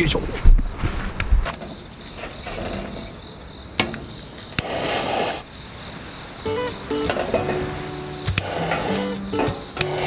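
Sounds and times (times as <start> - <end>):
crickets chirping: 0.0 - 10.0
lighter click and flame hiss: 4.5 - 5.4, 8.2 - 10.0.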